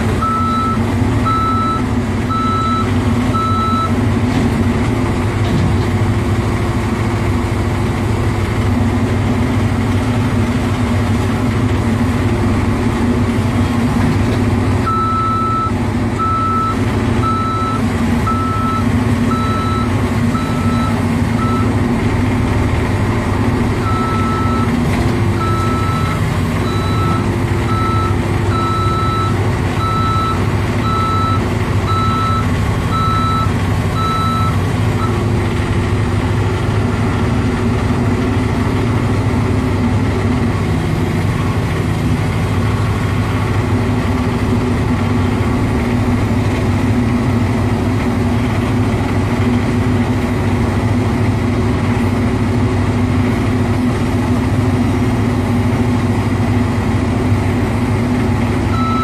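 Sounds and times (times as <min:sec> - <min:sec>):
diesel engine running: 0:00.0 - 0:59.0
travel alarm beeps: 0:00.2 - 0:03.9, 0:58.8 - 0:59.0.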